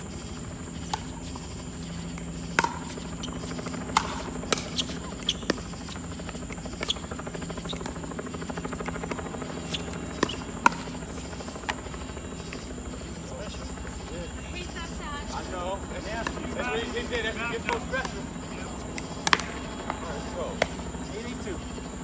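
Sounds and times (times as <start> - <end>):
low hum: 0.0 - 22.0
thin high whine: 0.0 - 22.0
paddles popping ball: 2.1 - 11.9, 18.9 - 20.0.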